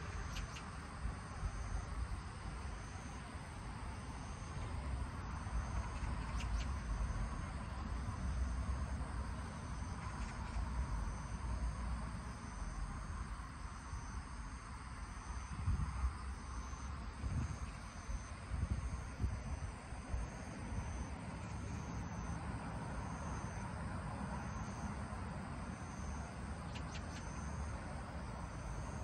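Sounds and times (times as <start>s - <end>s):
wind rumble on microphone: 12.7s - 21.6s.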